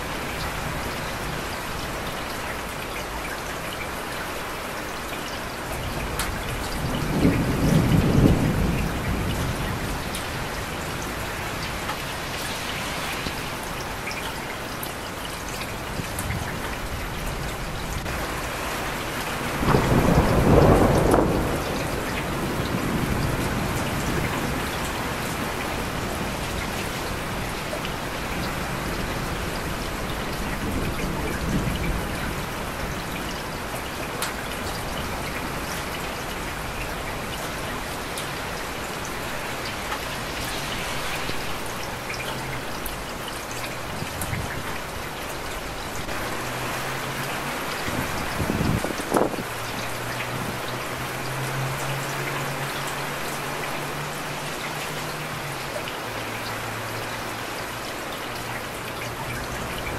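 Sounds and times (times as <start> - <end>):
heavy rain falling: 0.0 - 59.9
thunder rolling: 6.8 - 10.5, 19.5 - 24.8.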